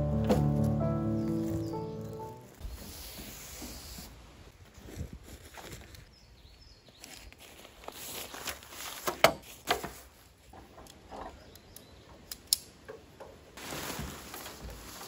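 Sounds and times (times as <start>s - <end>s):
tent fabric rustling: 1.3s - 6.0s, 7.4s - 10.4s, 13.6s - 15.0s.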